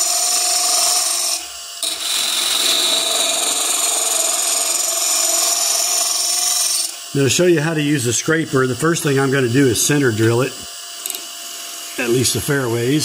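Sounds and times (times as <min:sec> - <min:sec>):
lathe gouge scraping wood: 0:00.0 - 0:07.8.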